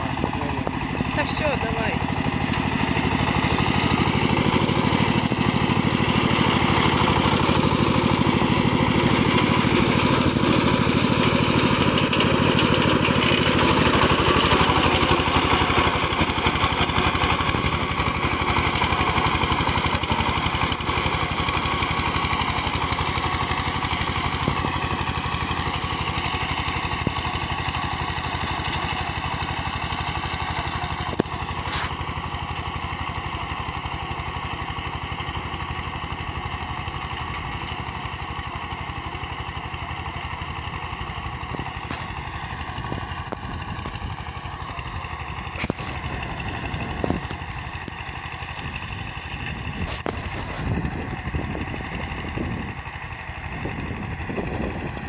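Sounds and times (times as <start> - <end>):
tractor engine under load: 0.0 - 55.0.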